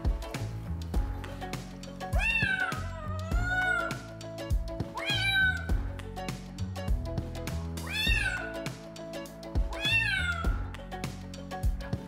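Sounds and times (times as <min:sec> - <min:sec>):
background music with steady beat: 0:00.0 - 0:12.0
cat meowing: 0:02.2 - 0:04.1, 0:05.0 - 0:05.7, 0:07.8 - 0:08.6, 0:09.8 - 0:10.5.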